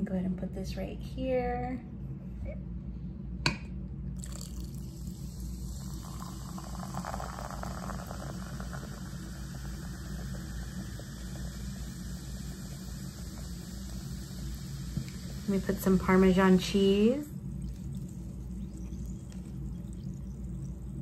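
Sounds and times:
water poured over ice fizzing: 0:04.2 - 0:21.0.

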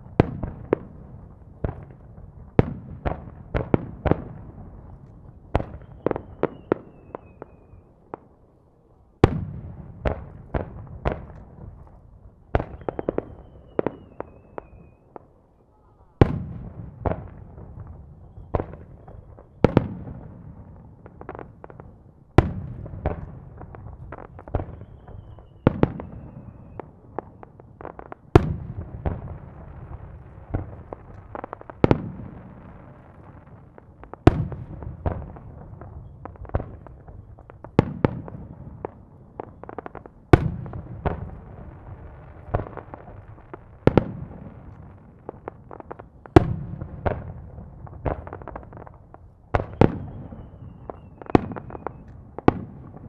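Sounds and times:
faint falling whistle: 0:12.7 - 0:16.1, 0:24.7 - 0:26.8, 0:50.0 - 0:52.1.

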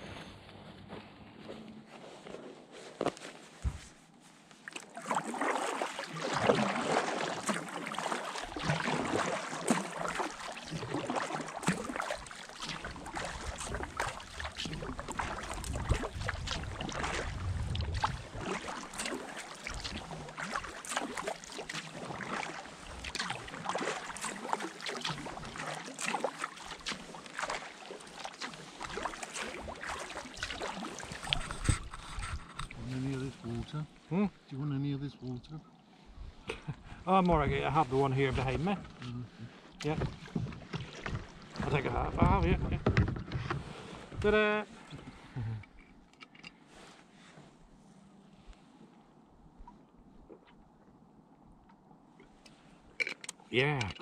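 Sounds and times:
paddle splashing in water: 0:04.5 - 0:34.1, 0:36.3 - 0:45.8.

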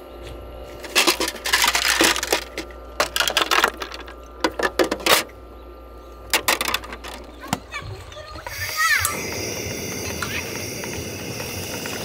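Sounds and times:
small hard objects clattering: 0:00.7 - 0:05.2, 0:06.3 - 0:07.4.

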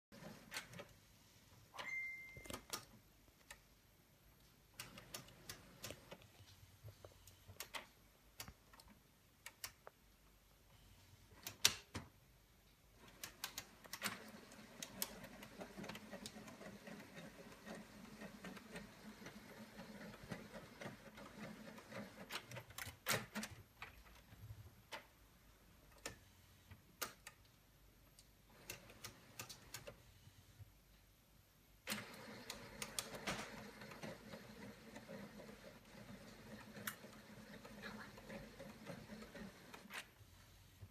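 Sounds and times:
printer mechanism whirring: 0:00.1 - 0:00.9, 0:04.7 - 0:06.2, 0:13.0 - 0:23.5, 0:28.5 - 0:30.0, 0:31.8 - 0:40.1.

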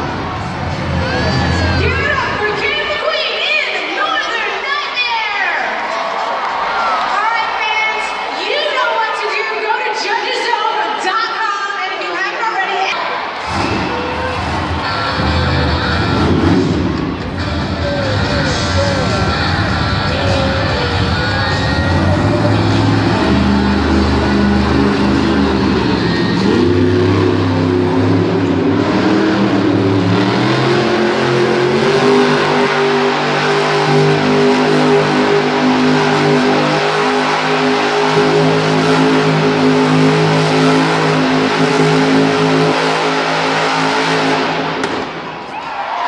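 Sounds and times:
monster truck engine revving: 0:00.0 - 0:03.2, 0:13.2 - 0:45.6.

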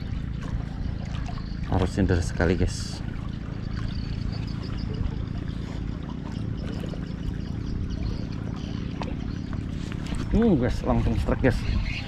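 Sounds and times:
river current pouring: 0:00.0 - 0:12.0
steady low hum: 0:00.0 - 0:12.0.

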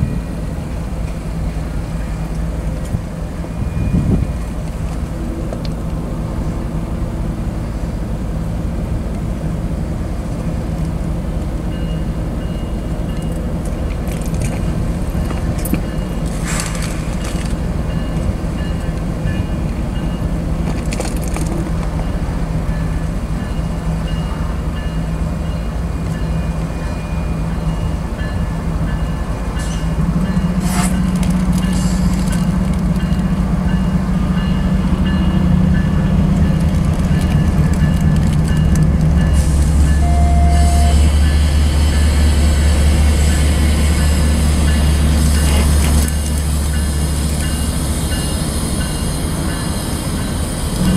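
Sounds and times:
diesel locomotive engines droning: 0:00.0 - 0:50.9.

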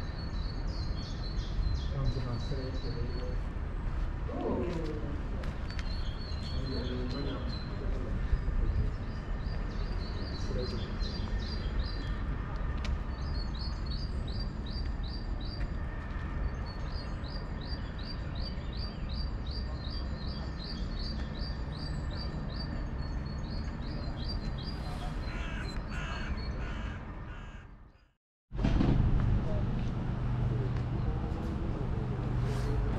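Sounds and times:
harsh lower bird calls: 0:16.9 - 0:28.1.

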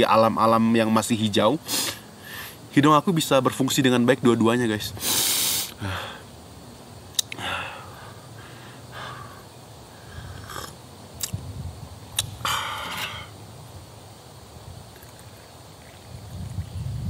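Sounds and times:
light sharp clicks: 0:07.2 - 0:07.4.

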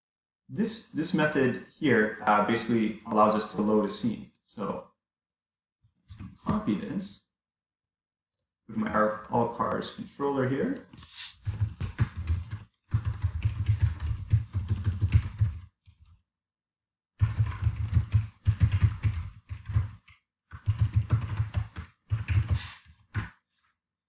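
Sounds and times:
typing on computer keyboard: 0:11.4 - 0:16.0, 0:17.2 - 0:23.4.

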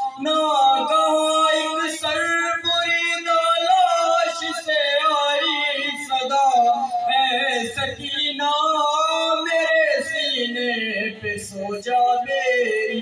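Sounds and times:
man chanting a lament: 0:00.0 - 0:13.0.

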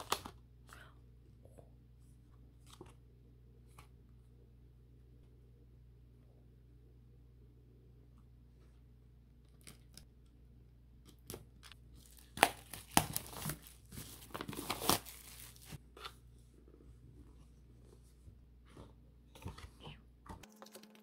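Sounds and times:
packaging tearing and crinkling: 0:12.0 - 0:15.8.

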